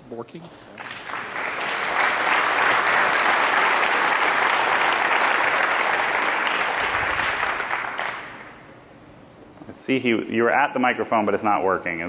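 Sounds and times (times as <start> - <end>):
audience applauding: 0.7 - 8.7.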